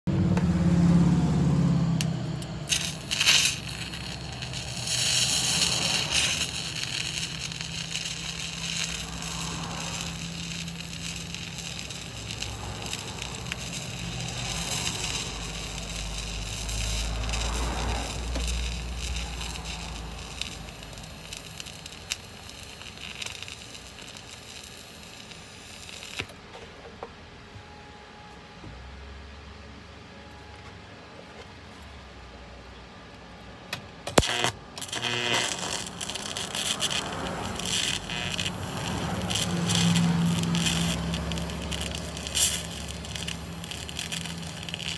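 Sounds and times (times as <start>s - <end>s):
welding arc crackling hiss: 2.0s - 26.4s, 34.1s - 44.9s.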